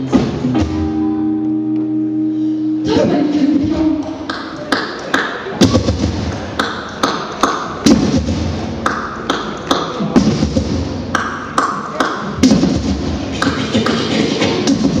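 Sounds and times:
person singing: 0:02.8 - 0:04.3
percussion clicking steady beat: 0:04.2 - 0:15.0.

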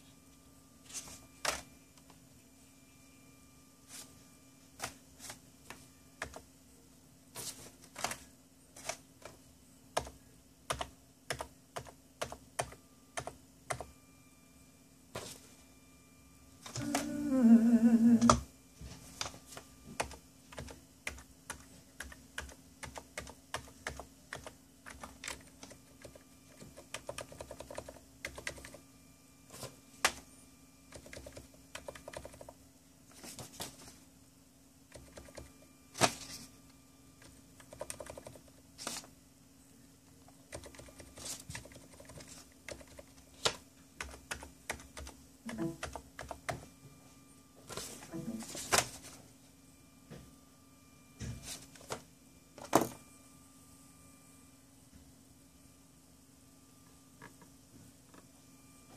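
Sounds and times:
keyboard keys clicking: 0:30.9 - 0:32.5, 0:37.6 - 0:38.4, 0:40.5 - 0:46.4.

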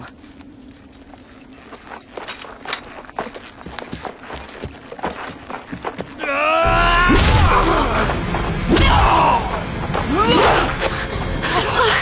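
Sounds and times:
deep rumble: 0:06.7 - 0:12.0.

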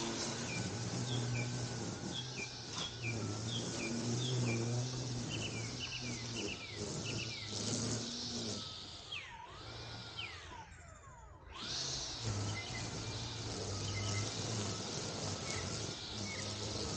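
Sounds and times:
bird chirping: 0:00.0 - 0:08.2, 0:12.4 - 0:16.9
steady low hum: 0:00.0 - 0:16.9.

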